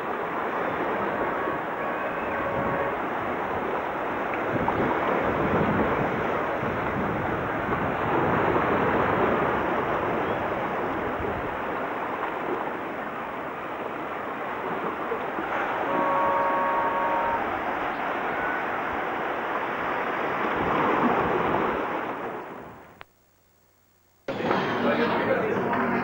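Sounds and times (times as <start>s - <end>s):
small ocean waves washing in: 0.0s - 22.9s
wind buffeting microphone: 0.0s - 22.9s.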